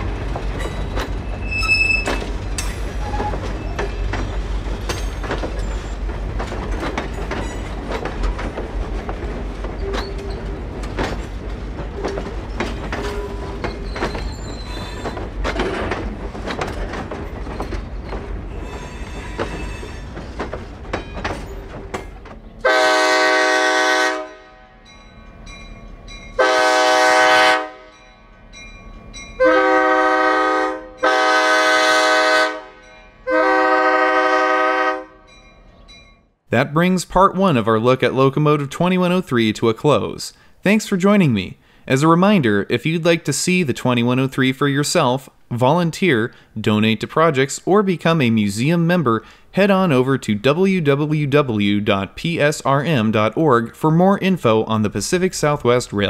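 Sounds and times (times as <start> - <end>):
wheels clicking on rails: 0.0 - 22.7
locomotive low rumble: 0.0 - 34.5
locomotive horn blasts: 22.6 - 24.9, 26.4 - 28.0, 29.4 - 35.3.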